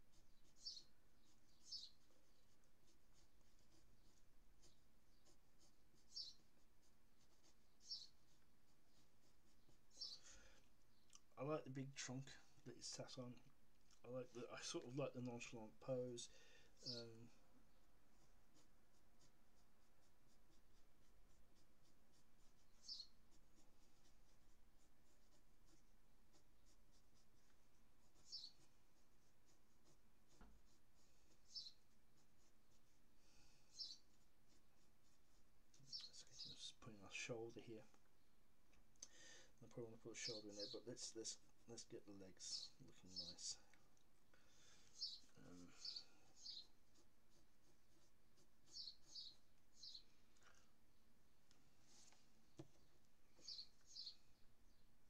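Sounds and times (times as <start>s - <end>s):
pencil scratching on paper: 0.0s - 11.0s, 16.8s - 37.3s, 39.9s - 43.6s, 44.6s - 50.1s.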